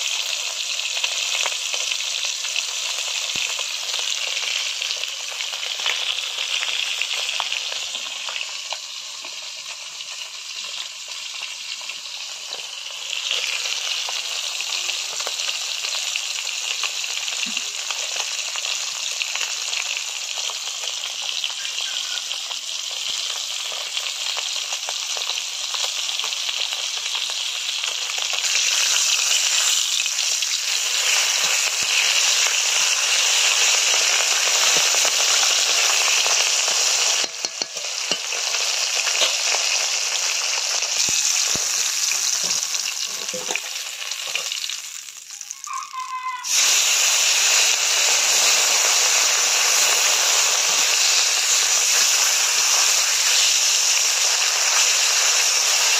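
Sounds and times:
fish sizzling in hot oil: 0.0 - 55.9
metal spatula tapping and scraping: 37.2 - 38.5.

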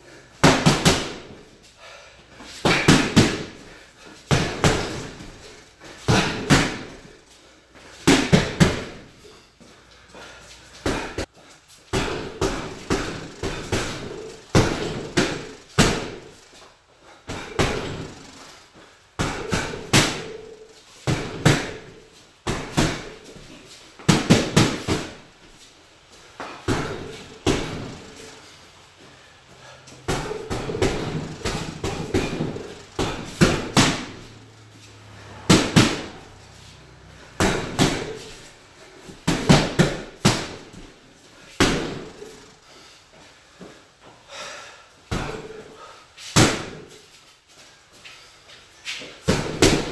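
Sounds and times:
gloved punches on heavy bag: 0.4 - 1.4, 2.6 - 7.1, 8.0 - 9.0, 10.8 - 11.2, 11.9 - 16.4, 17.3 - 18.4, 19.2 - 23.3, 24.0 - 25.3, 26.4 - 28.3, 30.1 - 34.3, 35.4 - 36.2, 37.3 - 38.5, 39.1 - 40.9, 41.6 - 42.4, 45.1 - 45.6, 46.3 - 47.0, 49.2 - 49.9.

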